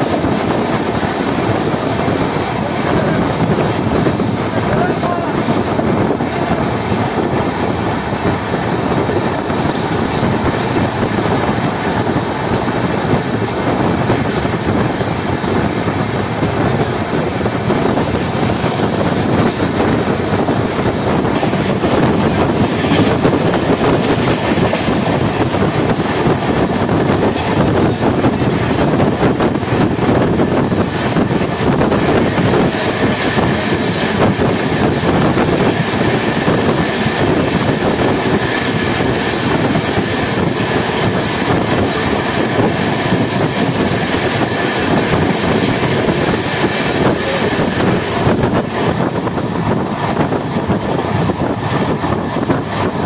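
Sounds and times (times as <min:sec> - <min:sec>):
train wheels rumbling on rails: 0:00.0 - 0:53.0.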